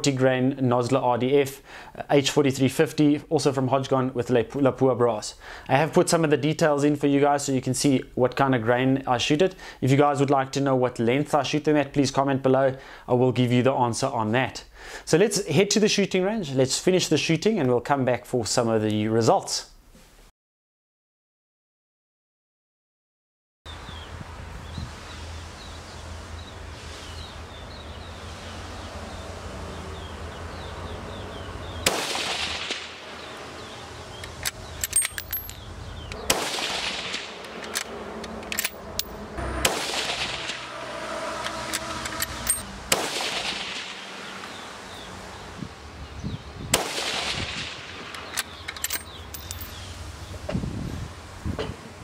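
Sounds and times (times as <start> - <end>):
rifle shots: 31.8 - 32.9, 36.3 - 37.4, 39.6 - 40.6, 42.5 - 44.0.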